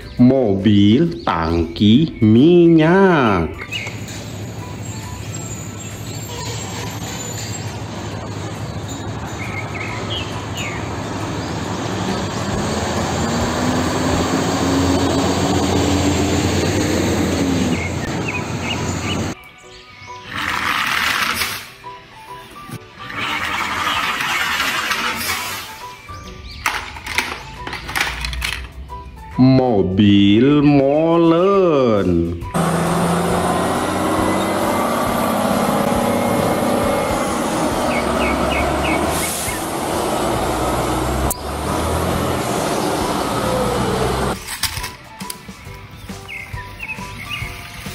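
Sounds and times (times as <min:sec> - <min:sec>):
traffic noise: 0:00.0 - 0:19.5, 0:20.2 - 0:29.4, 0:32.1 - 0:47.9
diesel truck driving past: 0:04.0 - 0:19.4, 0:32.3 - 0:44.4
tyres on wet road: 0:09.2 - 0:19.4, 0:22.9 - 0:25.9, 0:32.5 - 0:44.4.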